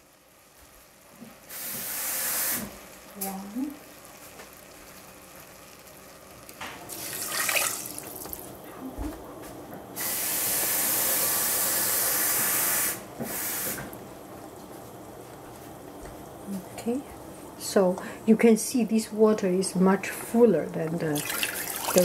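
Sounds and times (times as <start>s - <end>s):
water pouring into saucepan: 5.5s - 8.6s, 21.0s - 22.0s
running water rush: 21.2s - 22.0s.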